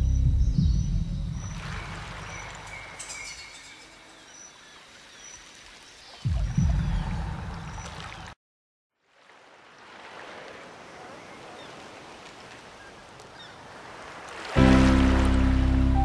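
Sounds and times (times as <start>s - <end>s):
loud low rumble: 0.0s - 1.6s, 14.6s - 16.0s.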